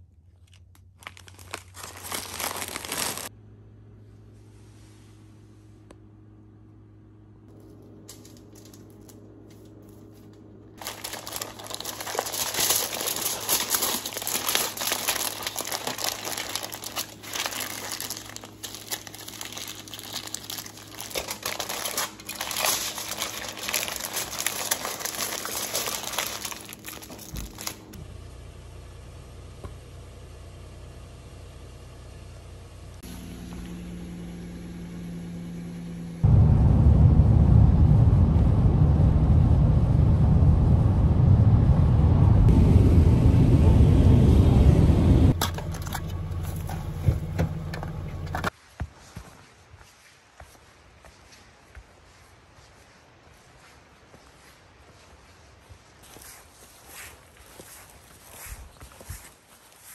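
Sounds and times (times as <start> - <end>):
crinkling and rustling: 0.0 - 3.3, 7.5 - 28.0, 45.4 - 50.2, 52.1 - 59.9
low steady hum: 0.0 - 48.6.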